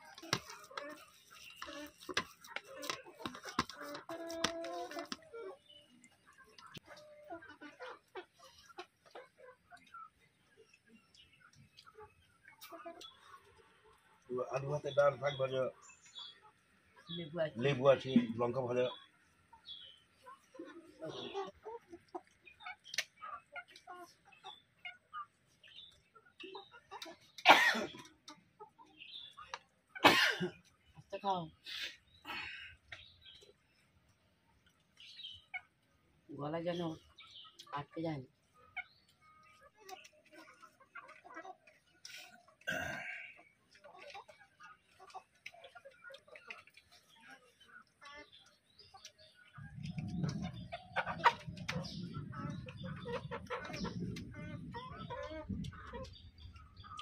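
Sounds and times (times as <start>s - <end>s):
chickens clucking: 0.0s - 57.0s
person coughing: 27.5s - 28.0s, 30.0s - 30.6s, 42.7s - 43.2s.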